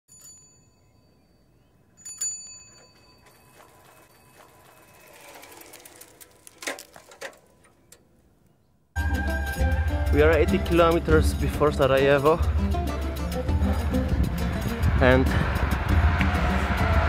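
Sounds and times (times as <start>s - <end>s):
bicycle bell dinging: 0.1s - 6.0s.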